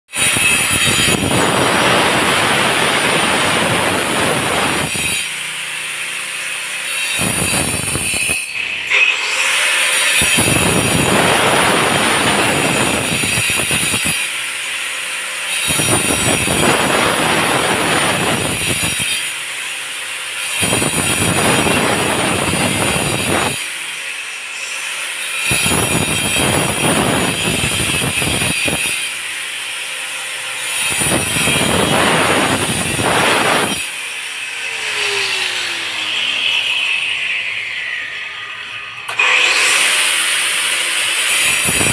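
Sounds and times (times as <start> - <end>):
angle grinder cutting concrete: 0.1 - 41.9
grinder motor whining: 0.2 - 14.4, 15.6 - 19.1, 20.6 - 23.7, 30.4 - 41.9.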